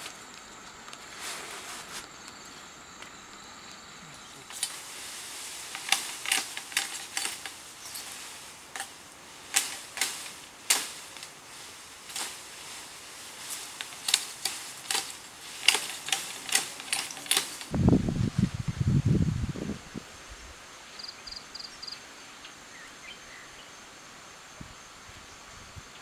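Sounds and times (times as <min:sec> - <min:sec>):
faint steady hiss: 0:00.0 - 0:26.0
machete chopping bamboo: 0:09.5 - 0:11.1.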